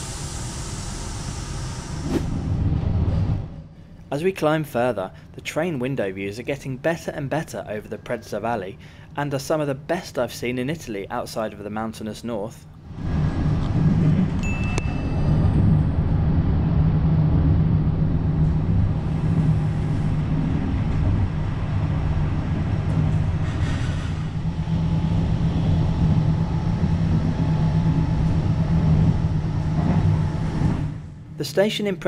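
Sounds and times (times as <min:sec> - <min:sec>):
train rumble inside coach: 0:00.0 - 0:03.9, 0:12.7 - 0:31.4.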